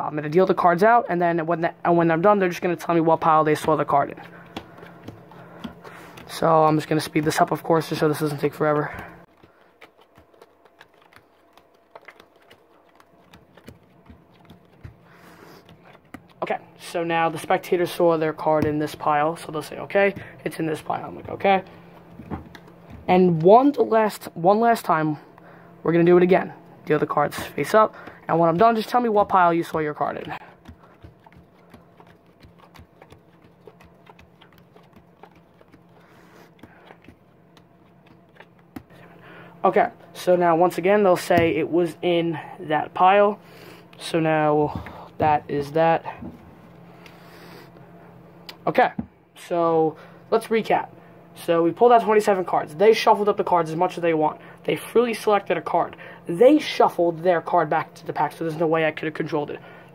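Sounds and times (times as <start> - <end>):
playing cards clicking and snapping: 3.5 - 16.4, 27.3 - 39.0
playing cards dealt on felt table: 29.7 - 39.0.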